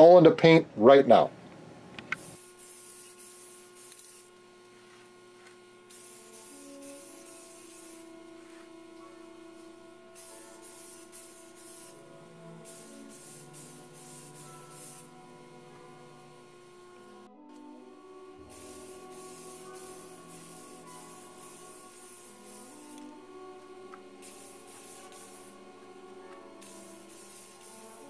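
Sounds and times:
steady low hum: 0.0 - 28.0
spray can hissing: 2.0 - 4.3, 5.9 - 8.7, 9.5 - 15.1, 18.4 - 28.0.

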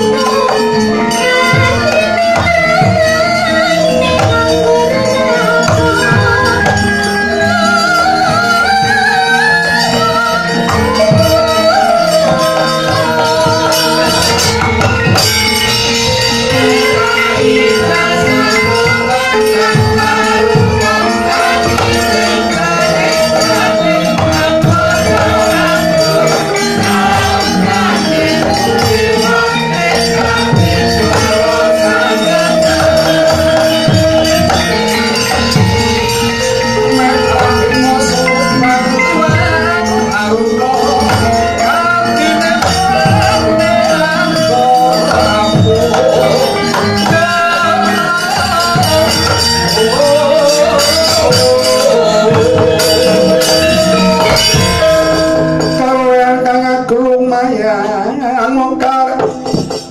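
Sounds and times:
metallophone notes: 0.0 - 58.2
drum strokes: 9.7 - 57.0.

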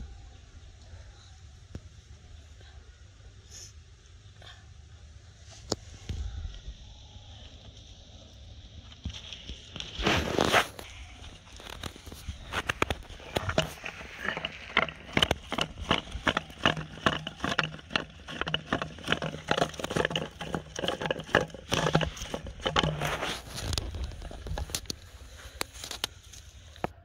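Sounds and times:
faint low hum: 0.0 - 27.0
plastic bottle crackling in hands: 9.8 - 26.3.

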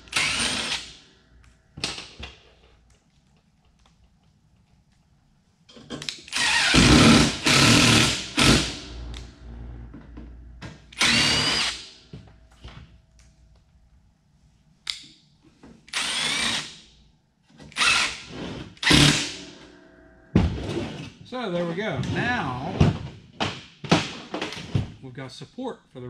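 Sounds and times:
cordless drill driving screws: 0.1 - 0.9, 6.3 - 8.7, 11.0 - 11.8, 15.9 - 16.7, 17.7 - 18.2.

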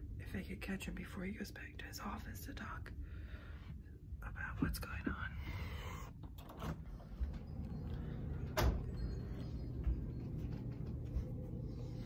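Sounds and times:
low rumble: 6.9 - 12.0.

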